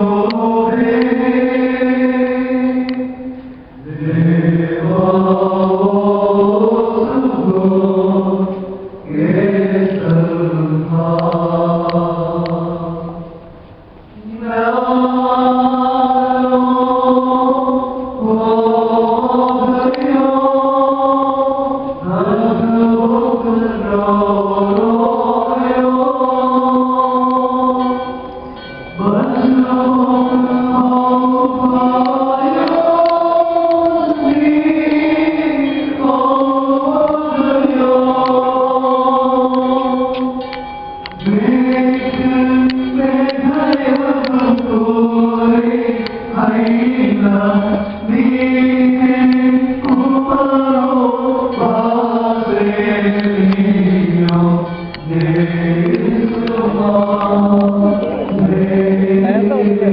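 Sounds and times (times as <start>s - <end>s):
men chanting a hymn in unison: 0.0s - 13.2s, 14.2s - 28.2s, 29.0s - 40.4s, 41.2s - 59.9s.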